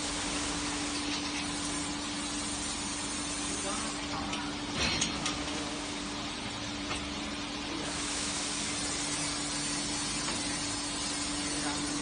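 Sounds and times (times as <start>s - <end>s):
steady hiss: 0.0s - 4.2s, 7.7s - 12.0s.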